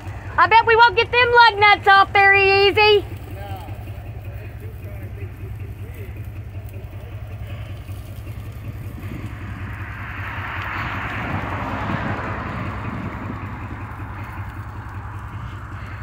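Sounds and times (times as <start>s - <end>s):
truck engine idling: 0.0s - 16.0s
rushing noise: 8.6s - 16.0s.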